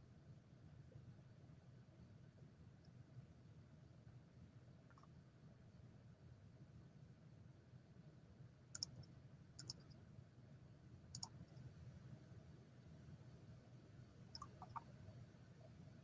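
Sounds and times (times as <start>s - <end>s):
faint short clicks: 8.8s - 10.0s, 11.2s - 11.7s, 14.3s - 14.9s.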